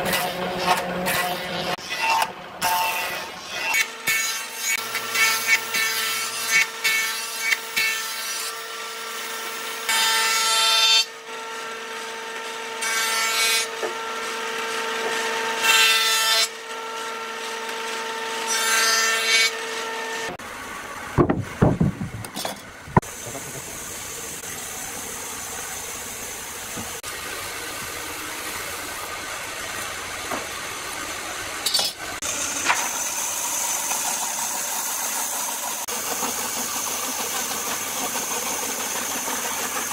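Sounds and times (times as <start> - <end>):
band saw running: 0.0 - 39.9
log planing noise: 0.0 - 39.9
planer motor humming: 20.3 - 39.9
knocks: 21.2 - 23.1.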